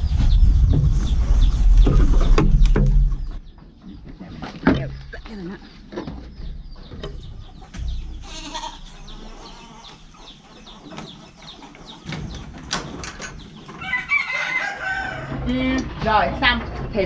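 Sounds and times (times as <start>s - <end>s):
footsteps on wooden slats: 0.1s - 9.1s
goats bleating: 8.2s - 9.9s.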